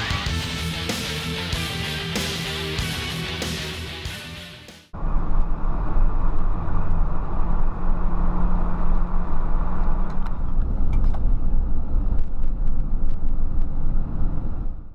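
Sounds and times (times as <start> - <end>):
road and wind noise: 4.9 - 14.9
car engine hum: 5.0 - 14.9.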